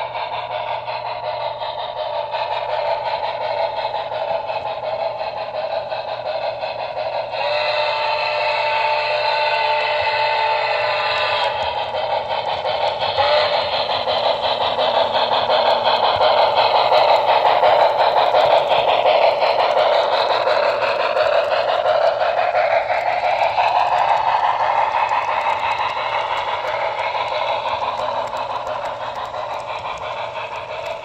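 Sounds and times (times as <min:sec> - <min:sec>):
model train wheels rattling: 0:00.0 - 0:31.0.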